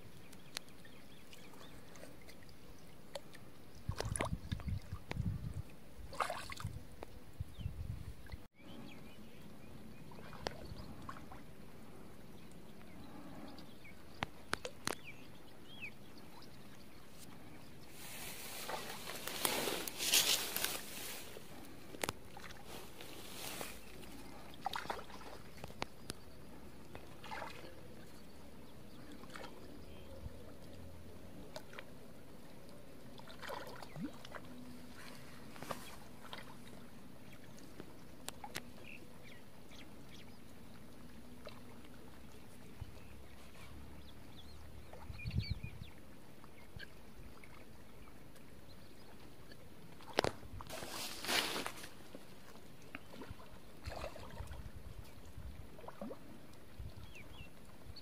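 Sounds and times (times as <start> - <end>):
small water splashes: 0.2 - 7.1, 10.0 - 11.6, 17.9 - 32.0, 32.6 - 43.4, 46.2 - 57.8.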